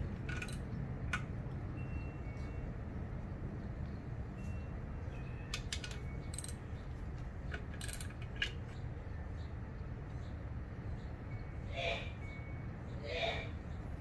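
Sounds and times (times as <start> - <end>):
low background hum: 0.0 - 14.0
metallic clinks and jingles: 4.3 - 6.9.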